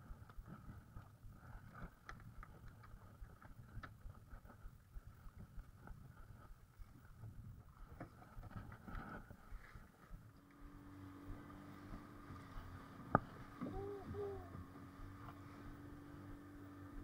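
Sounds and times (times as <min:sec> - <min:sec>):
faint wind rumble: 0:00.0 - 0:17.0
small clicks and taps: 0:00.2 - 0:04.5.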